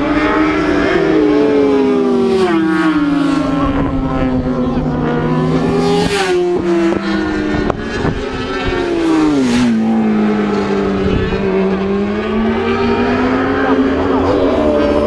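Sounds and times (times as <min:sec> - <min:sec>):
racing motorcycle engine revving: 0:00.0 - 0:15.0.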